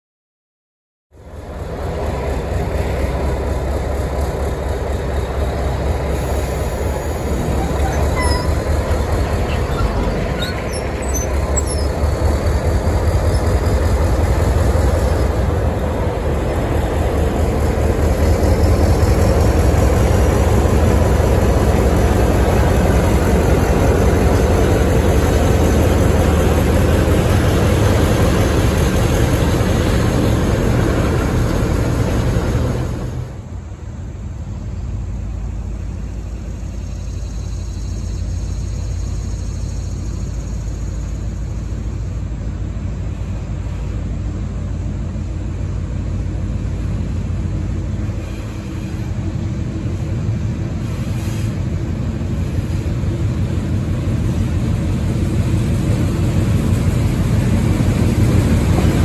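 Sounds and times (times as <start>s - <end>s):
diesel locomotive engine drone: 1.1s - 59.0s
rail noise: 1.1s - 59.0s
short high squeaks: 7.4s - 12.0s.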